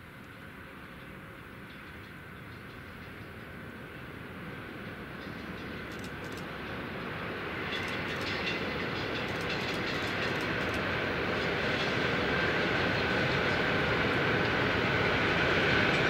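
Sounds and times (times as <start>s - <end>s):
train wheels rumbling on rail: 0.0s - 16.0s
wheels clicking: 7.7s - 10.9s.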